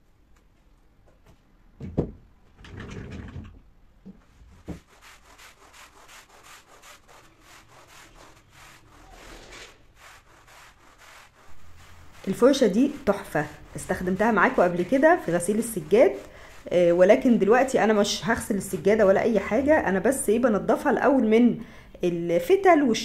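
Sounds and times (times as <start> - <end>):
stiff brush scrubbing a rug: 4.8 - 20.3.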